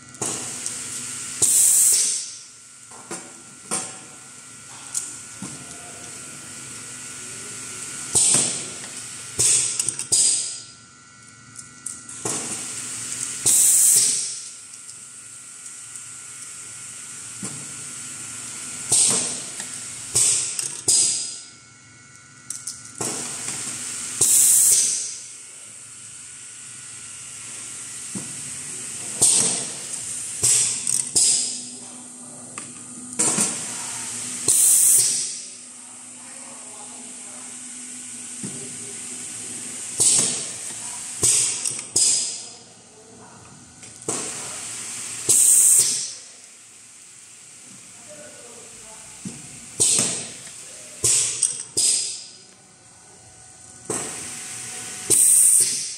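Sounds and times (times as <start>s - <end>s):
faint machine hum: 0.0s - 55.9s
pneumatic air hisses: 0.3s - 2.4s, 9.4s - 10.6s, 12.2s - 14.4s, 18.9s - 19.5s, 20.1s - 21.4s, 23.0s - 25.3s, 29.2s - 31.6s, 33.2s - 35.5s, 39.8s - 42.4s, 44.1s - 46.2s, 49.8s - 52.4s, 53.9s - 55.9s.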